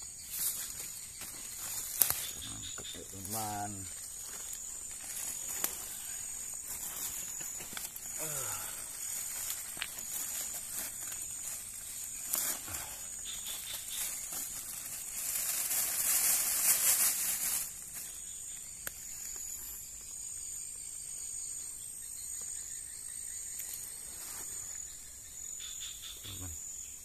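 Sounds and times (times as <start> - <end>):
insects droning: 0.0 - 27.0
plastic bag rustling: 13.7 - 18.0.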